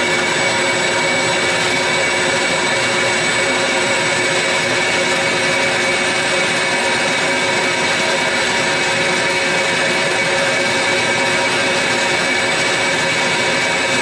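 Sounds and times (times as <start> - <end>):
dust collector and fan running: 0.0 - 14.0.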